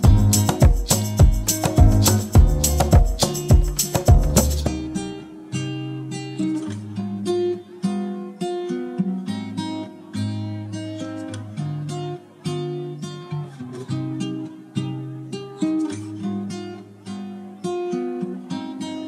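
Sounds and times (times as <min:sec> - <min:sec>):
percussive hits: 0:00.0 - 0:04.8
acoustic guitar picking: 0:00.0 - 0:19.0.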